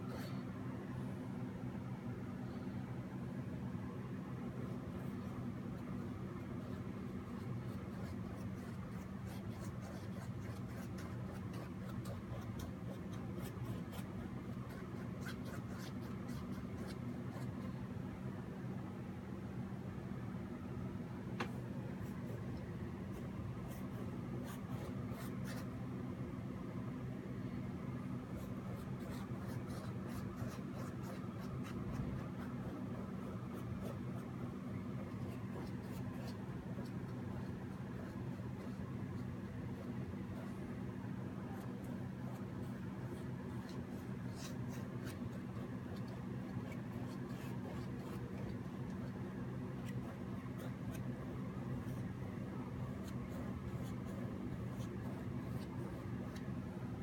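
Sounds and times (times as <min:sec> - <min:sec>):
steady low hum: 0:00.0 - 0:57.0
paintbrush scratchy strokes: 0:21.8 - 0:25.8, 0:28.2 - 0:40.8, 0:41.5 - 0:56.6
brush scratching on painting surface: 0:41.5 - 0:56.6.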